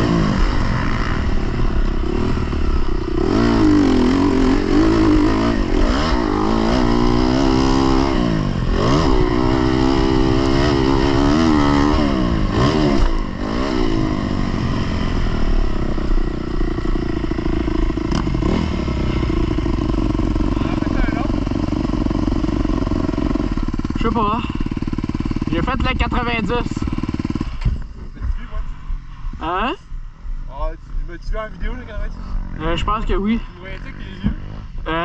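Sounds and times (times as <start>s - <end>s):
dirt bike engine revving: 0.0s - 29.7s, 31.5s - 35.0s.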